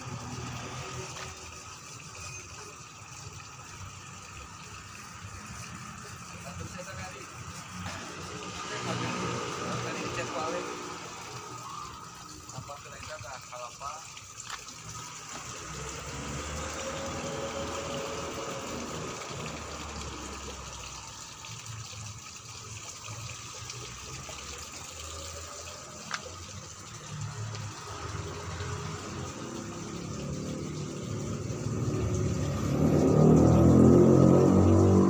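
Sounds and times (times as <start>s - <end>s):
small engine running: 4.0s - 12.6s, 14.8s - 21.8s, 23.6s - 35.0s.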